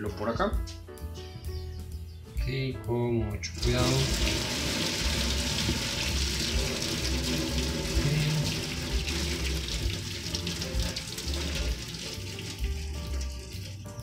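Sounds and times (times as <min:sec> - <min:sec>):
water pouring into a steel sink: 0:03.6 - 0:14.0.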